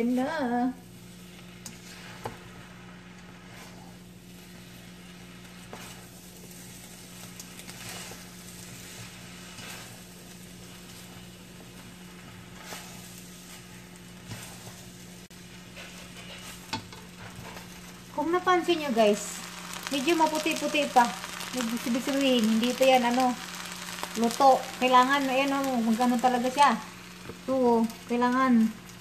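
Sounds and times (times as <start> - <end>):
noodles sizzling in a wok: 0.0 - 29.0
utensils scraping a pan: 1.1 - 18.0.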